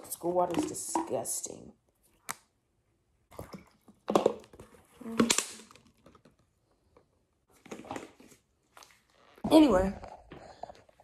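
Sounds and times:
water bottle knocks and rustles: 3.4s - 6.4s.

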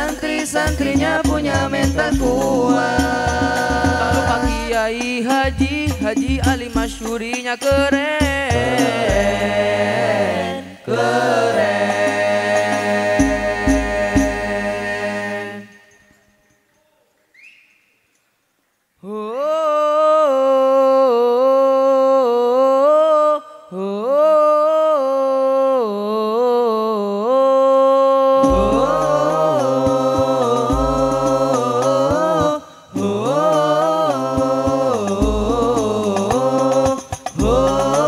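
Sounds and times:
frame drum beats: 0.0s - 9.6s, 12.6s - 14.6s, 28.4s - 32.5s, 34.4s - 38.0s
man singing: 0.0s - 14.6s, 19.0s - 38.0s
group of voices singing: 0.0s - 16.0s, 19.0s - 38.0s.

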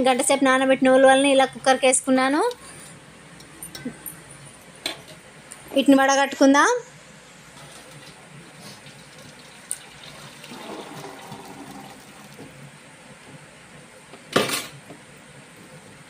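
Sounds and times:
water poured through strainer: 8.7s - 12.4s.

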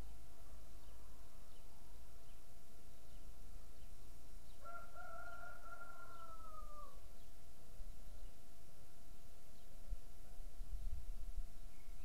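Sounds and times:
rooster crowing: 4.6s - 7.0s.

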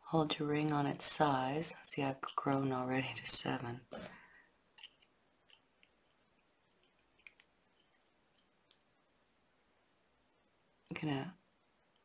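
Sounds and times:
faint clicks of wire and tools: 6.8s - 8.9s.

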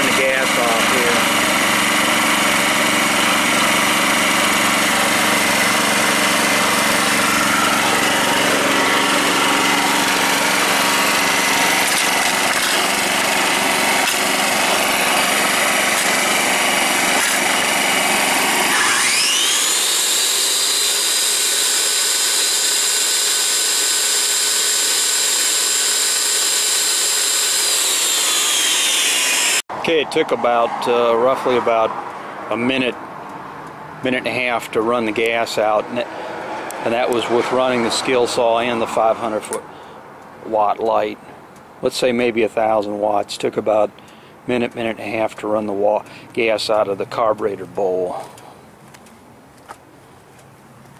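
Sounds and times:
generator running under load: 0.0s - 32.9s, 34.0s - 41.4s, 44.0s - 48.6s
high motor whine: 0.0s - 32.9s, 34.3s - 39.7s.

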